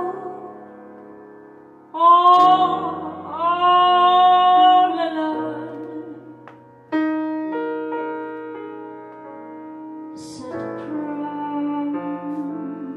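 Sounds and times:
woman singing jazz ballad: 0.0 - 0.6, 1.9 - 6.4, 10.2 - 12.9
grand piano: 0.0 - 12.9.

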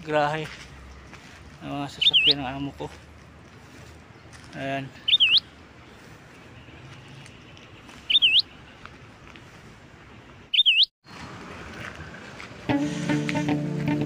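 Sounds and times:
bird whistled call: 2.0 - 2.4, 5.0 - 5.5, 8.1 - 8.5, 10.5 - 10.9.

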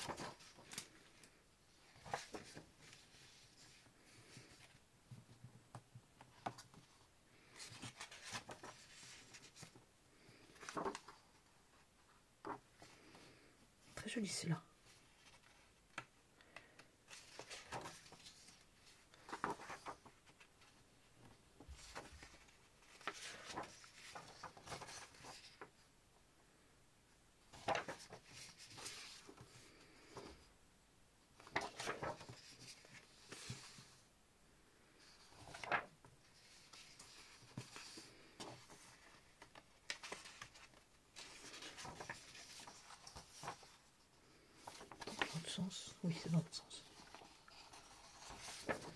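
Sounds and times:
paper sheets rustling: 0.0 - 5.4, 6.3 - 11.5, 17.1 - 25.7, 27.5 - 30.4, 31.4 - 34.0, 35.0 - 48.9.

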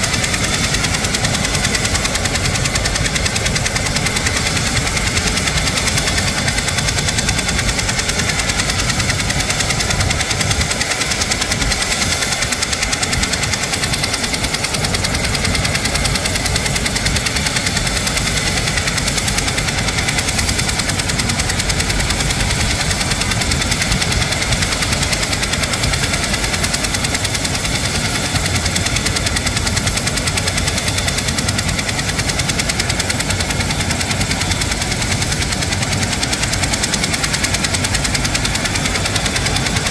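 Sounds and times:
helicopter rotor and turbine: 0.0 - 39.9.

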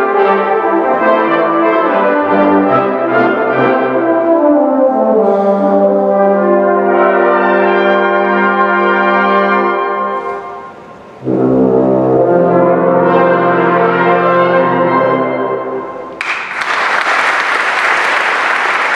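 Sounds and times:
brass band chords: 0.0 - 16.2
audience applause: 16.2 - 18.9.

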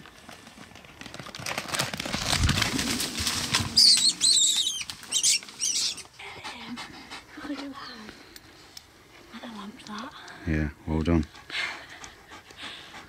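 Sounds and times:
rustling and thudding in undergrowth: 1.4 - 5.7
rabbit squealing: 3.7 - 6.1.

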